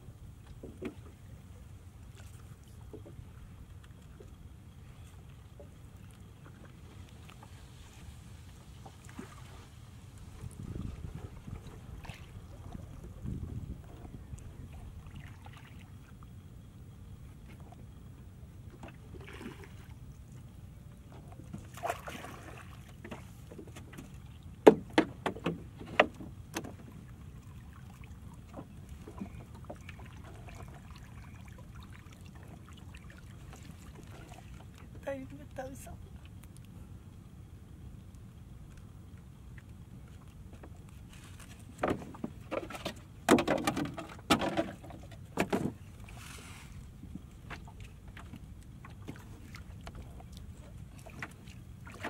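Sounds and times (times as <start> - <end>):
low steady rumble: 0.0 - 52.0
knocks and clatters in wooden boat: 0.4 - 1.4, 2.1 - 4.4, 10.2 - 15.8, 21.0 - 35.2, 39.6 - 52.0
knocks on wooden hull: 24.6 - 26.8, 41.8 - 45.8
soft rustle: 40.0 - 41.8, 45.9 - 47.3.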